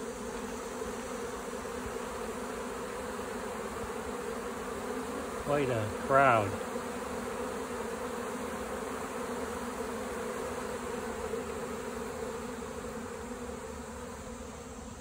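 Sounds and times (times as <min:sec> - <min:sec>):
bee swarm buzzing: 0:00.0 - 0:15.0.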